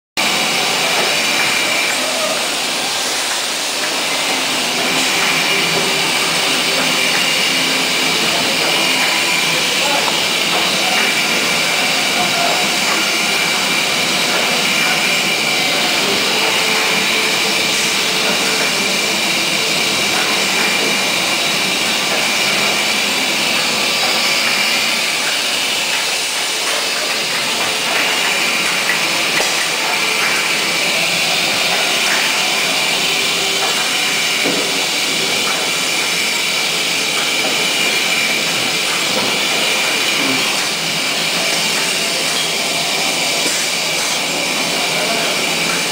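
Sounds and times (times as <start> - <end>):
high machine whine: 0.2 - 45.9
machinery hiss: 0.2 - 45.9.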